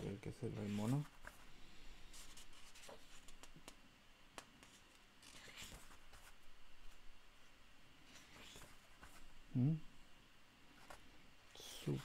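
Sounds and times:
page turning rustle: 0.5 - 1.4, 2.1 - 3.8, 4.6 - 7.0
paper rustling: 2.1 - 3.7, 4.6 - 7.0.

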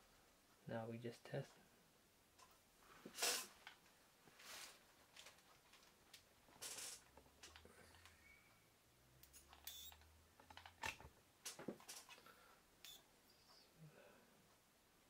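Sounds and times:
faint clicks and handling sounds: 3.6 - 8.2, 9.2 - 13.7.

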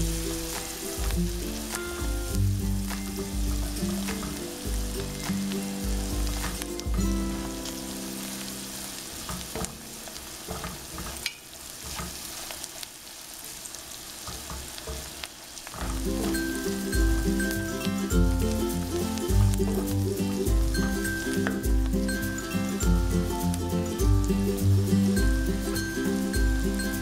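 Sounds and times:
background music: 0.0 - 9.2, 15.9 - 27.0
onions sizzling in hot oil: 0.0 - 27.0
spatula scraping and tapping pan: 9.2 - 12.3.

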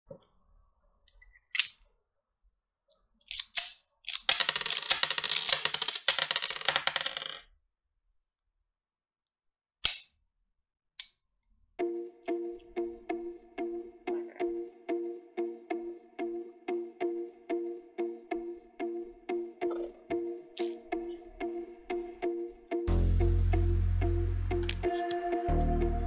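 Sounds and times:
toy pistol metal clicks: 3.3 - 4.4.

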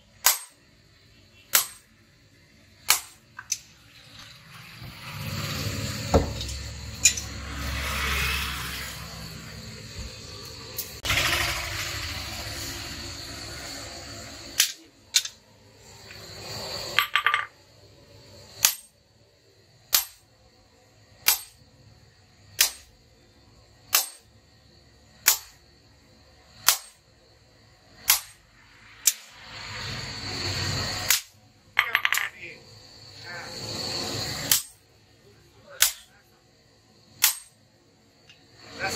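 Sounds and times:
hammer striking metal on anvil: 0.2 - 0.6, 1.5 - 1.9, 2.9 - 3.2, 18.6 - 18.9, 19.9 - 20.2, 21.2 - 21.6, 22.6 - 22.9, 23.9 - 24.3, 25.2 - 25.5, 26.6 - 27.0, 28.0 - 28.4, 34.5 - 34.8, 35.8 - 36.1, 37.2 - 37.6
rushing noise: 4.0 - 17.0, 28.4 - 31.1.

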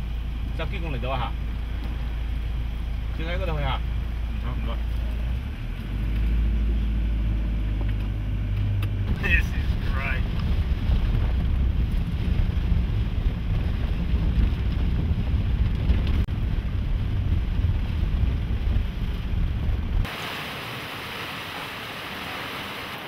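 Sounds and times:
hiss of wind and rain: 7.8 - 23.0
storm wind buffeting microphone: 9.1 - 20.2.

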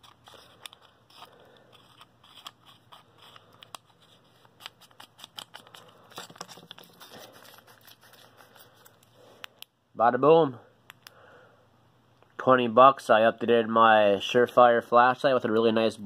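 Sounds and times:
metal cap screwing clicks: 0.0 - 3.9
hand handling noise: 0.0 - 9.8.

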